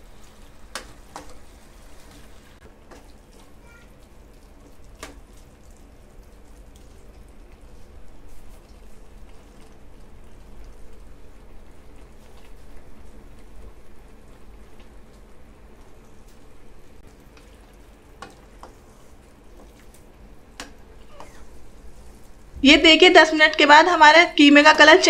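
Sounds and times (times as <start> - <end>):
meat and onions sizzling: 0.0 - 3.3.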